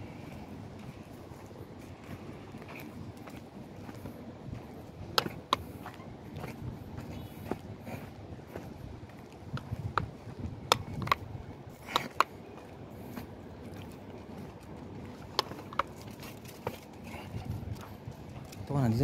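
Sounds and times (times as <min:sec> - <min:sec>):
sharp clicks: 0:10.6 - 0:11.3
rustling handling noise: 0:13.1 - 0:19.0.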